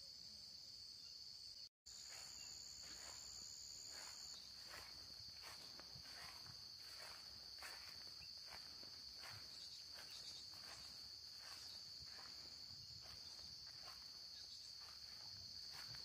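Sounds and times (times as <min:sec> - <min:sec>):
crickets chirping: 0:00.0 - 0:16.0
soft footsteps: 0:02.0 - 0:16.0.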